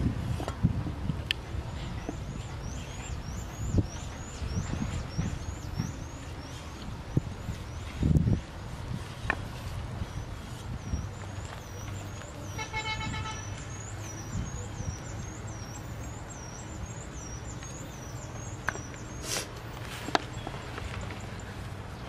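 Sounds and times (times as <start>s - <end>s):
short horn toot: 12.6s - 13.6s.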